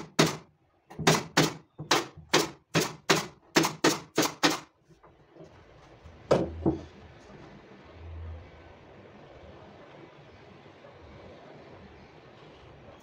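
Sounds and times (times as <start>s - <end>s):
hammer striking wood: 0.0s - 4.7s, 6.3s - 6.9s.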